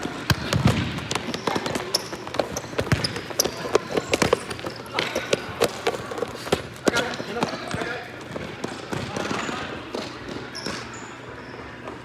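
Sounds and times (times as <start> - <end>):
footsteps on tiled court: 0.0 - 10.8.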